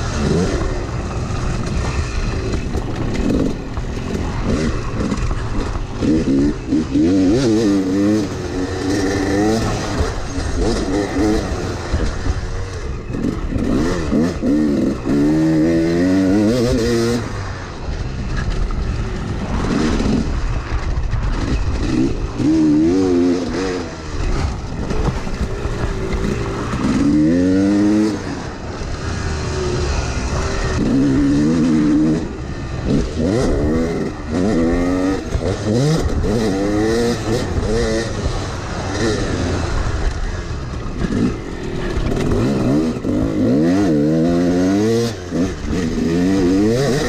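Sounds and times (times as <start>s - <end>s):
dirt bike engine revving: 0.0s - 47.0s.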